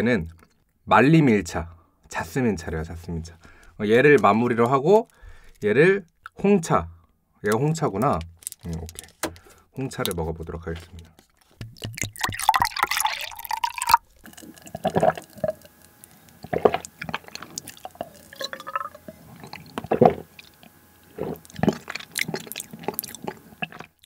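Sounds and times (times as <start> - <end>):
tea poured into a glass: 11.8 - 15.7
gulps of drinking: 11.8 - 24.0.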